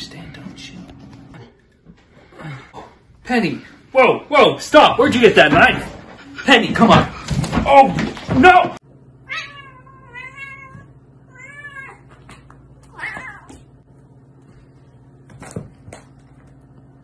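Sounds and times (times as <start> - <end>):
cat meowing: 9.3 - 12.0, 12.9 - 13.6.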